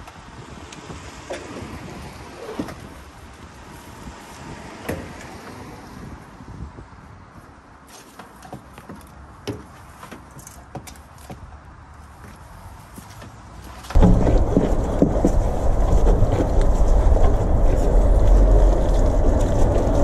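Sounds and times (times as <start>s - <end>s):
outdoor background noise: 0.0s - 20.0s
pole and hoses knocking: 14.0s - 20.0s.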